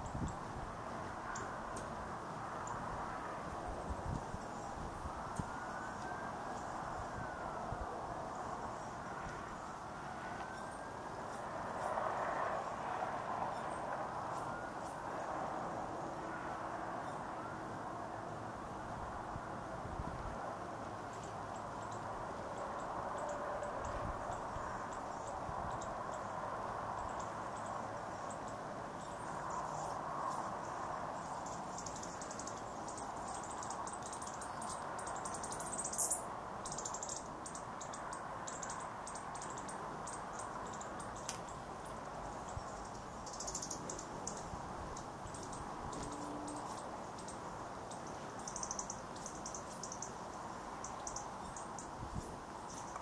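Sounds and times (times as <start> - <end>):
steady background hiss: 0.0 - 53.0
hummingbirds chittering: 21.0 - 53.0.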